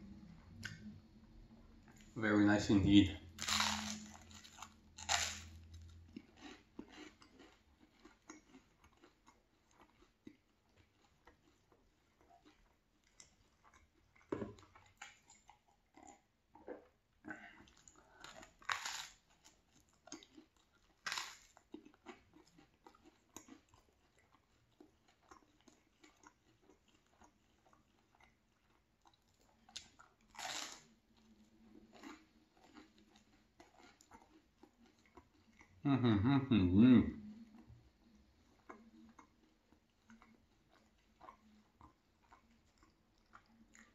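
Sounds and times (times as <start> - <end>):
toast crunching: 3.4 - 15.5, 18.2 - 30.9
chewing and mouth sounds: 3.4 - 36.0, 37.2 - 43.9.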